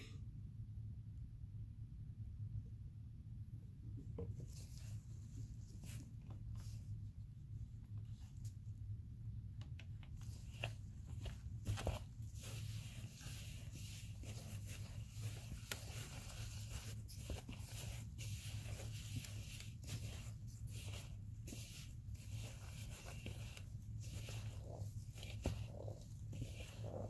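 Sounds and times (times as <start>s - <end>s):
steady low hum: 0.0s - 27.0s
powder crunching and rustling: 10.2s - 27.0s.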